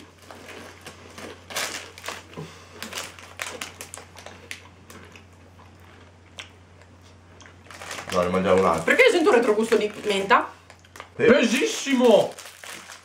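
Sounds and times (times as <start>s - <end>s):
plastic wrapper crinkling: 0.1s - 4.6s, 7.6s - 13.0s.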